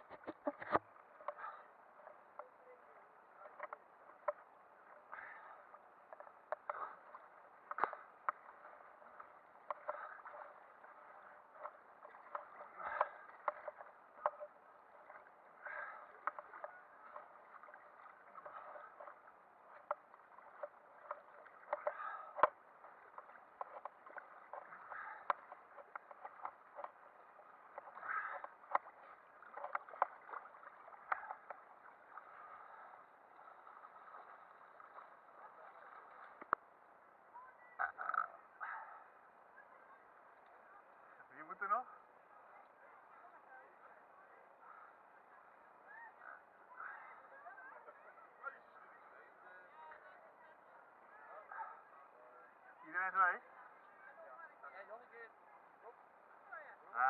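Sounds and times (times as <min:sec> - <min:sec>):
water lapping against camera housing: 0:00.0 - 0:41.9.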